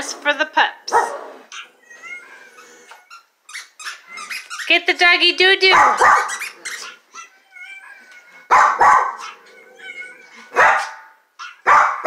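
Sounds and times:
dog barking: 0:00.9 - 0:01.3, 0:05.7 - 0:06.5, 0:08.5 - 0:09.4, 0:10.5 - 0:12.0.

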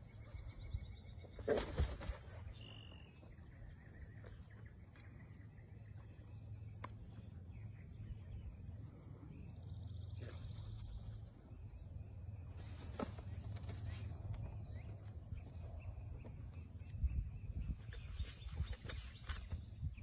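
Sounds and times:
distant bird calls: 0:00.0 - 0:20.0
bird wings flapping: 0:01.4 - 0:02.5.

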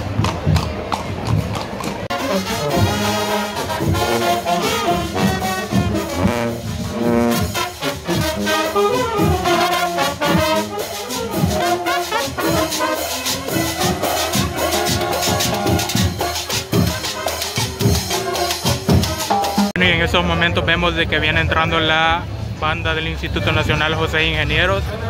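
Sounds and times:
marching band brass playing: 0:00.0 - 0:19.8
percussion beat of guiros and timbales: 0:01.3 - 0:19.8.

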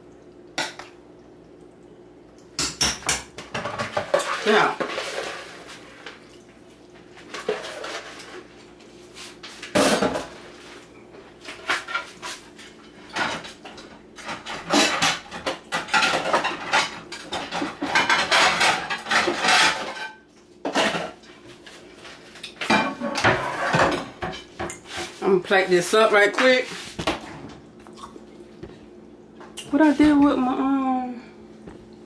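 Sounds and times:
metal utensils clattering on pan: 0:14.2 - 0:21.2, 0:22.6 - 0:24.7.

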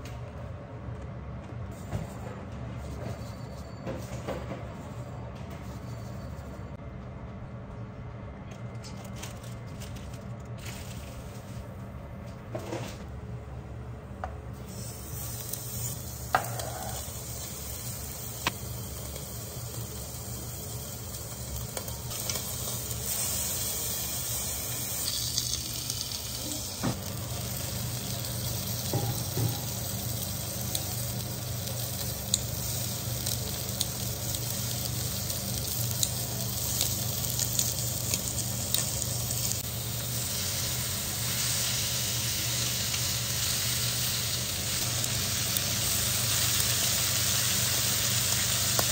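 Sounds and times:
meat sizzling on a grill: 0:14.6 - 0:48.9.

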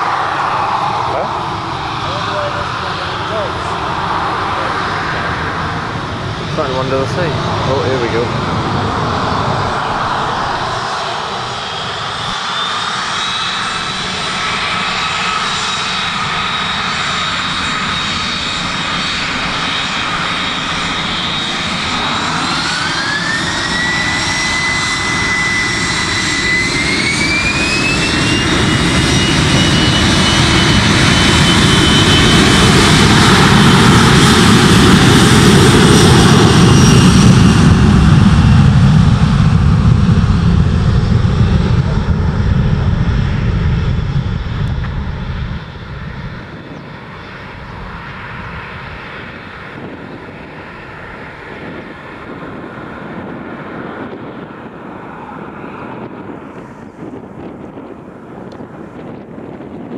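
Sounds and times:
deep jet engine roar: 0:00.0 - 0:59.9
jet engine whine: 0:00.0 - 0:59.9.

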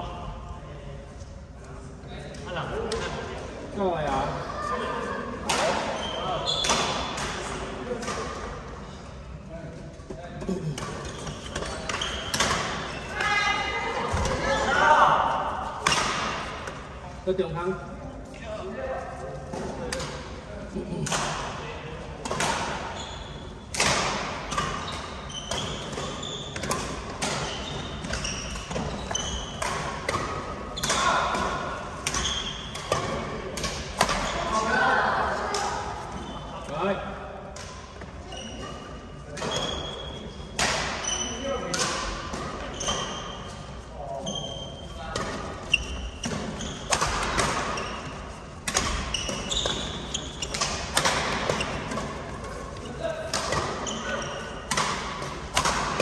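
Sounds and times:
shoes squeaking on court: 0:10.6 - 0:14.7, 0:22.9 - 0:23.5, 0:24.4 - 0:31.2, 0:36.0 - 0:36.7, 0:38.2 - 0:40.3, 0:42.6 - 0:48.4, 0:49.0 - 0:50.8, 0:53.6 - 0:54.7
racket hitting shuttlecock: 0:10.8 - 0:13.4, 0:15.8 - 0:16.8, 0:23.7 - 0:34.4, 0:46.2 - 0:52.6, 0:53.2 - 0:56.0.

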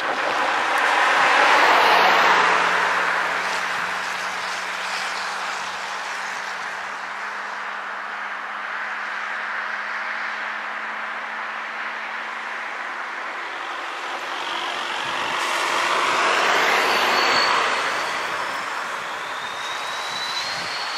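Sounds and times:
car driving past: 0:00.0 - 0:04.7, 0:12.4 - 0:20.7.

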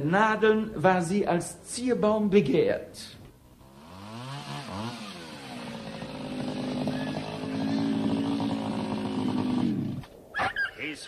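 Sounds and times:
chainsaw revving: 0:03.5 - 0:10.1.

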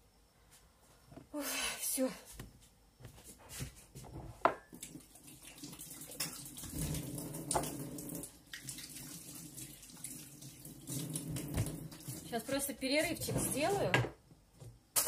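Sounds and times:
water running: 0:04.7 - 0:13.9.

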